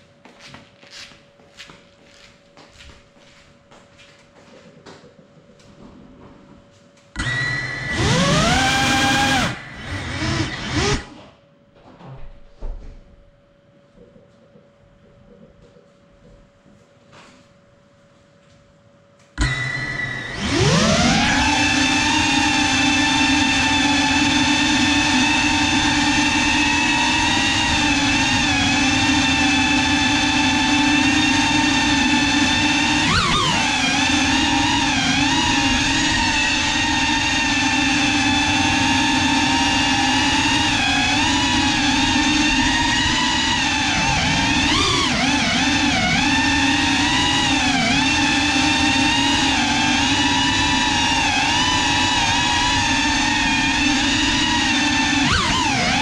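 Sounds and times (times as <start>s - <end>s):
drone motors whining: 7.2s - 11.4s, 19.4s - 56.0s.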